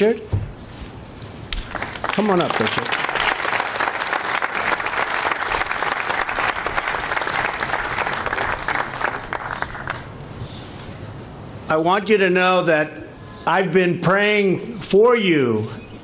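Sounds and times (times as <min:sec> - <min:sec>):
audience applauding: 0:01.6 - 0:10.1.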